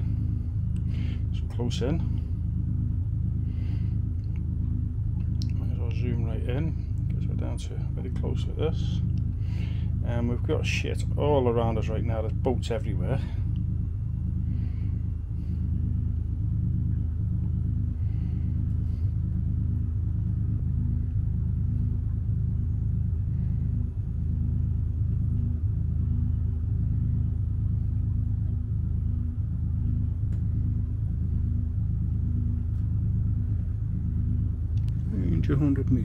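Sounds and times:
low engine drone: 0:00.0 - 0:36.0.

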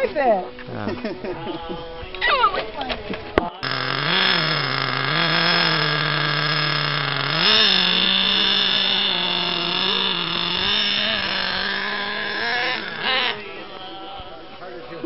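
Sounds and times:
rc truck engine idling: 0:03.6 - 0:15.0.

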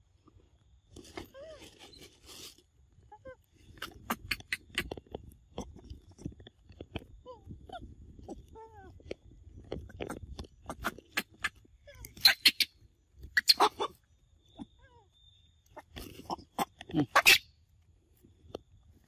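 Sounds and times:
monkeys squeaky calls: 0:12.1 - 0:12.7, 0:13.4 - 0:14.0, 0:16.3 - 0:17.5.

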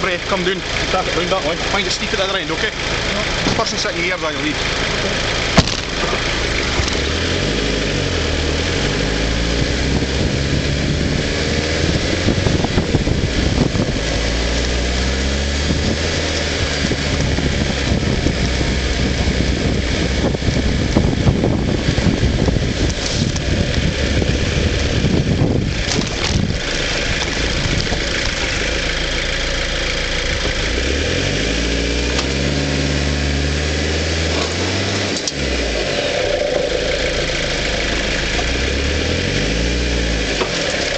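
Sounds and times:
vehicle engine revving: 0:00.0 - 0:40.9
vehicle knocking over rough ground: 0:05.4 - 0:07.1, 0:24.8 - 0:29.2.

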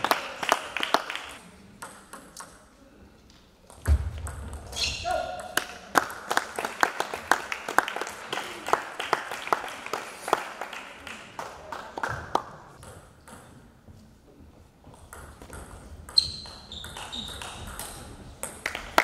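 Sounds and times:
table tennis balls clicking: 0:15.0 - 0:18.6.

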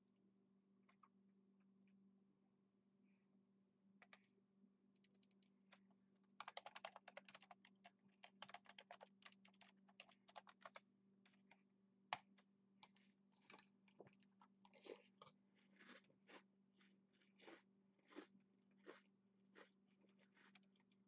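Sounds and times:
keyboard typing: 0:06.4 - 0:10.8
crunchy chewing: 0:13.4 - 0:21.0.

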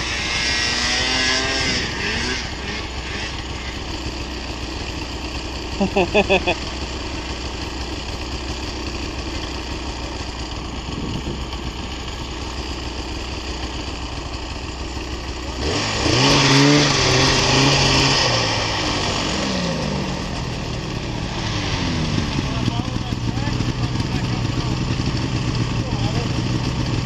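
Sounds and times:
snowmobile engine: 0:00.0 - 0:27.0.

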